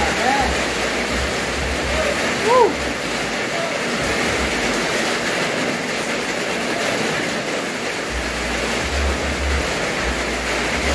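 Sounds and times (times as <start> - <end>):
heavy rain on a roof: 0.0 - 10.9
low rumble: 8.1 - 10.9.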